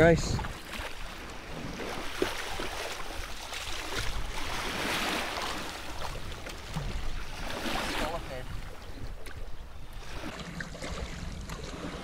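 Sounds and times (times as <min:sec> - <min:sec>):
wind rumble on microphone: 0:00.0 - 0:02.0
shallow water splashing: 0:00.3 - 0:12.0.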